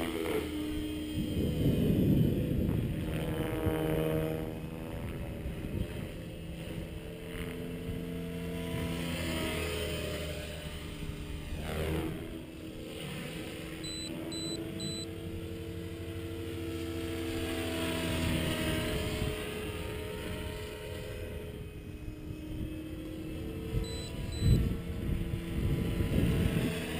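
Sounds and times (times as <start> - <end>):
rc helicopter motor and rotor whine: 0.0 - 26.9.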